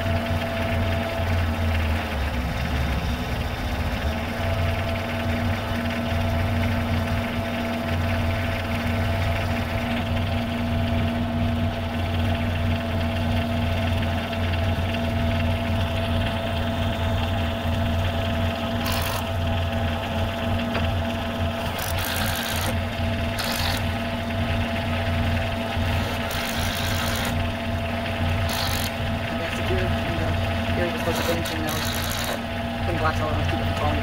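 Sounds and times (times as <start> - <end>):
diesel engine idling: 0.0 - 34.0
cordless drill driving screws: 18.8 - 19.2, 21.6 - 22.8, 23.4 - 23.9, 25.8 - 27.4, 28.5 - 29.0, 31.0 - 32.4.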